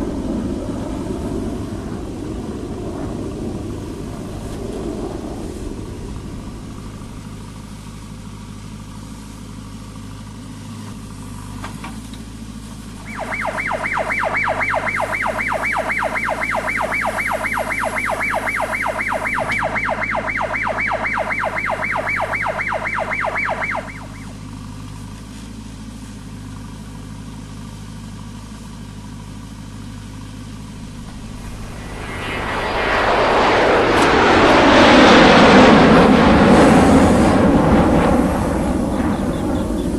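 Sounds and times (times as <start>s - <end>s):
diesel engine running: 2.2s - 39.9s
electronic warning beeper: 13.0s - 24.4s, 31.1s - 35.5s.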